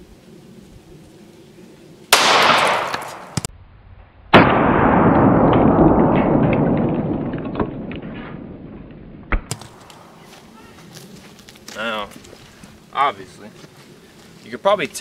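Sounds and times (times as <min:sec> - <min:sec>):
pistol shot: 0:02.1 - 0:03.5, 0:04.3 - 0:08.0
slow motion dull gunshot: 0:02.2 - 0:03.5, 0:04.3 - 0:09.7.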